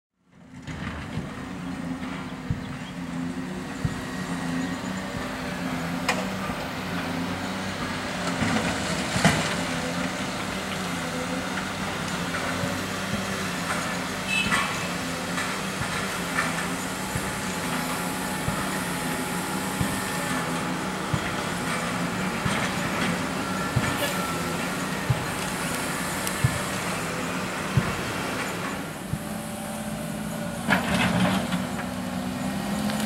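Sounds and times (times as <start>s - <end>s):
diesel construction machinery running: 0.2s - 33.0s.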